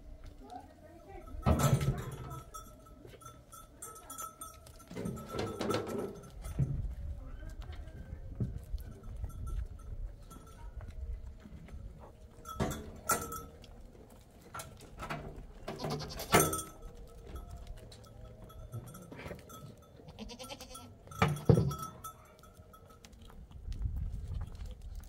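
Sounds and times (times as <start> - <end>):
goats bleating: 15.7 - 16.5, 20.1 - 21.0.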